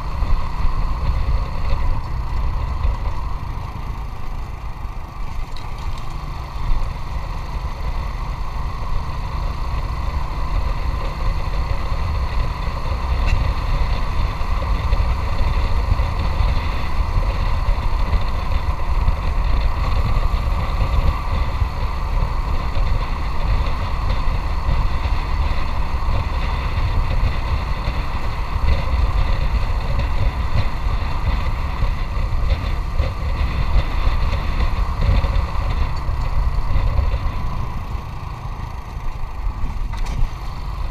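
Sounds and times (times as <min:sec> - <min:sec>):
motorcycle engine running: 0:00.0 - 0:40.9.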